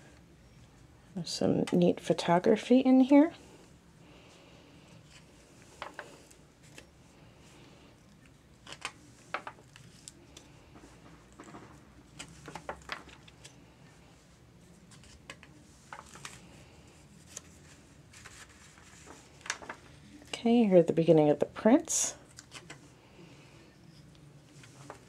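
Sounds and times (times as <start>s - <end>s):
book pages rustling: 4.9s - 7.0s, 8.0s - 20.3s, 22.3s - 22.9s, 24.0s - 25.0s.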